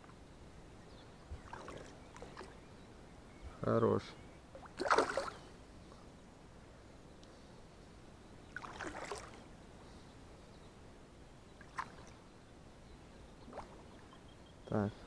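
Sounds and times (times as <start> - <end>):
fish splashing at water surface: 4.7 - 5.4.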